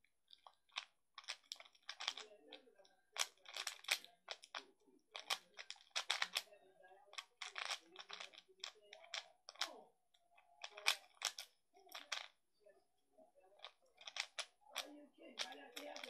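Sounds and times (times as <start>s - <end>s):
puzzle cube turning clicks: 0.3s - 2.2s, 3.2s - 6.5s, 7.1s - 9.7s, 10.6s - 12.3s, 13.6s - 16.0s.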